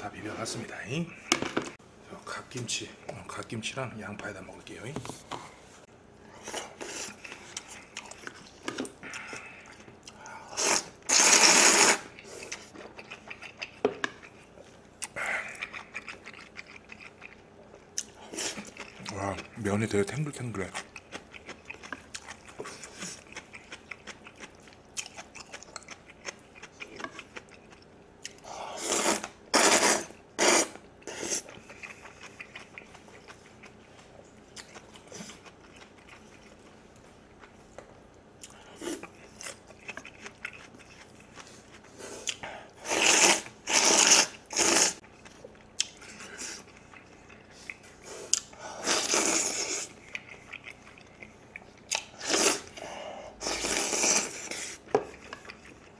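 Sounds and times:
loud noodle slurps: 10.6s - 12.2s, 28.8s - 31.5s, 42.8s - 45.0s, 48.8s - 49.9s, 52.2s - 52.8s, 53.4s - 54.8s.

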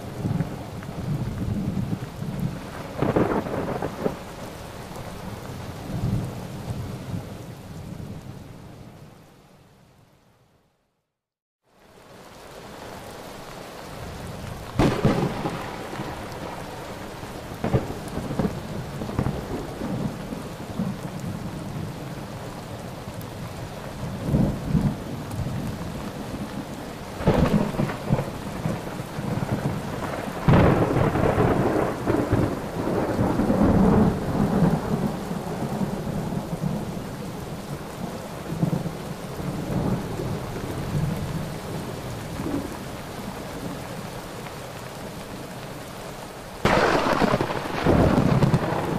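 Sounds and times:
heavy rain falling: 0.0s - 9.8s, 11.7s - 48.9s
thunderclaps: 1.4s - 4.3s, 14.7s - 21.4s, 27.2s - 36.8s, 46.6s - 48.9s.

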